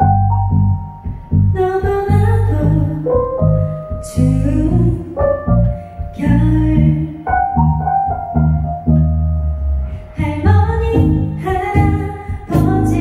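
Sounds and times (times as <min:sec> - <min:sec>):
electric bass: 0:00.0 - 0:13.0
drums: 0:00.8 - 0:08.4, 0:09.8 - 0:13.0
woman singing: 0:01.6 - 0:05.4, 0:06.0 - 0:07.3, 0:10.1 - 0:13.0.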